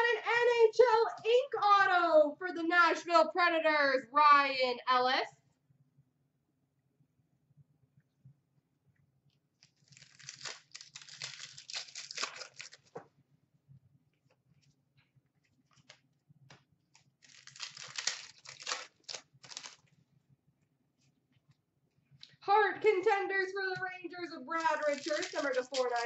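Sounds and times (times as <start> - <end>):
wrappers tearing and crinkling: 9.6 - 13.0, 17.2 - 19.9, 24.5 - 26.0.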